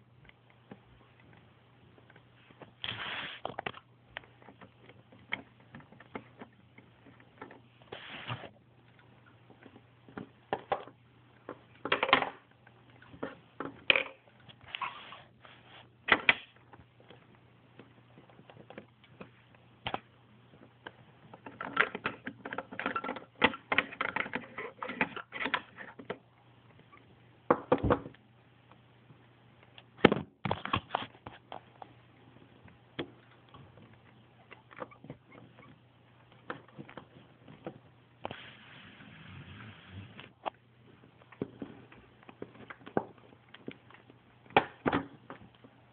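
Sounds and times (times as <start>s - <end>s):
plastic toys clicking and rustling: 21.3s - 26.2s.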